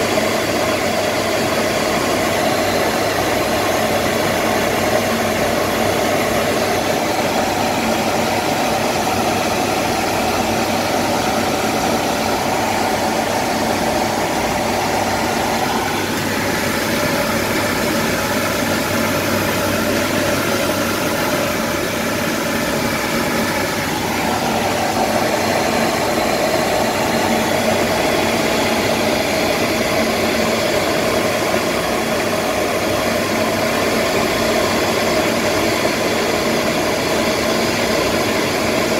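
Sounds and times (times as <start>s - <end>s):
aircraft cockpit engine noise: 0.0s - 38.9s
rushing air: 2.2s - 30.3s.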